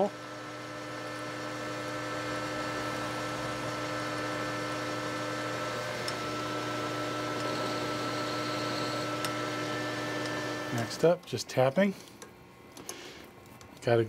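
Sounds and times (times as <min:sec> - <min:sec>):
metal lathe humming: 0:00.0 - 0:11.1
drill drilling into steel: 0:00.9 - 0:11.0.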